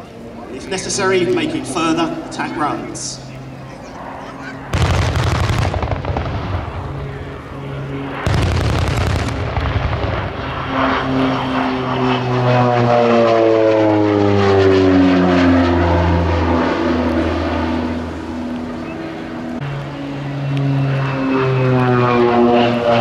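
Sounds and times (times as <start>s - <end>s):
turboprop aircraft passing overhead: 0.0s - 23.0s
loud crackling burst: 4.7s - 7.3s, 8.2s - 10.9s.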